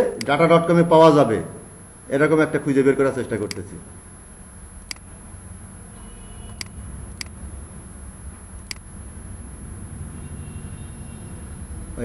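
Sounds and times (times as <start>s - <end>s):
computer mouse clicks: 4.8s - 5.1s, 6.5s - 7.4s, 8.6s - 8.9s.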